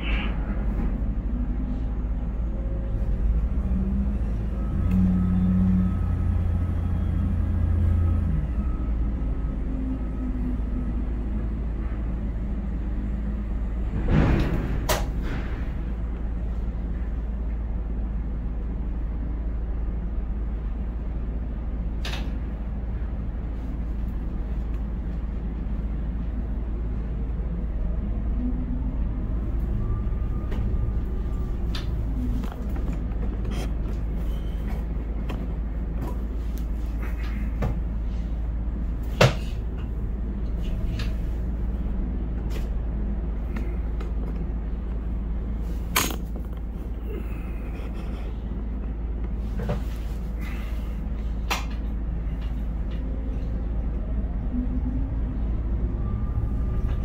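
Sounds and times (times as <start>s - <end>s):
crane machinery hum: 0.0s - 57.0s.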